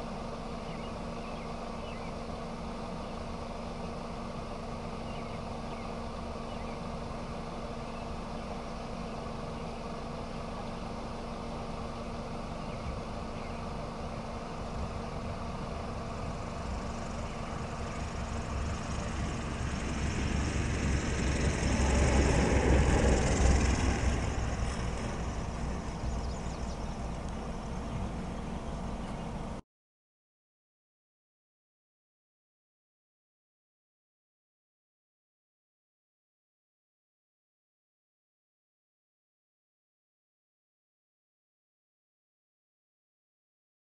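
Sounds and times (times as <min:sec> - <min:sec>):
propeller airplane engine: 0:00.0 - 0:29.6.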